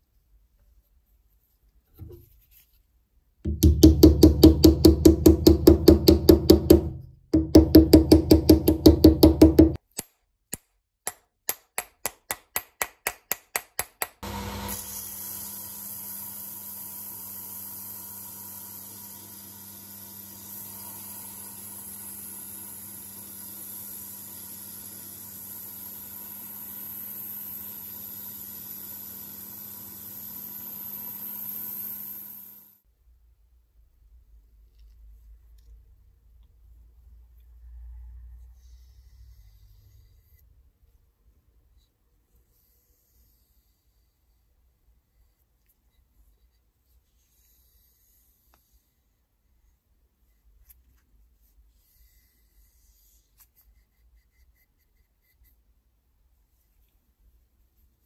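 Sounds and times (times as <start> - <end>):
belt sander grinding steel: 14.2 - 32.6.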